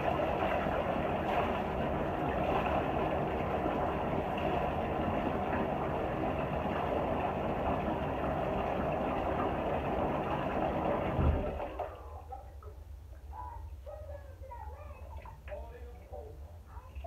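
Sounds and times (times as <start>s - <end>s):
garment being wrung in water: 0.0s - 5.7s
water running into bathtub: 0.0s - 17.0s
low thump: 11.2s - 11.6s.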